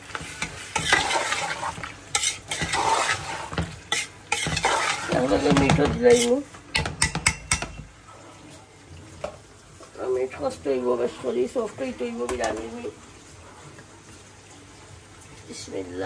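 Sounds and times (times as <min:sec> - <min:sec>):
spoon stirring and scraping pot: 0:00.0 - 0:08.0
food sizzling in oil: 0:00.0 - 0:08.8
spoon clinking against pot: 0:03.9 - 0:07.8.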